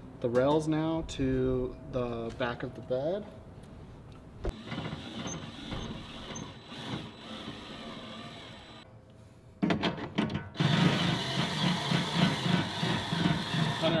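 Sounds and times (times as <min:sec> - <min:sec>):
cordless drill motor whirring: 0:04.5 - 0:08.8.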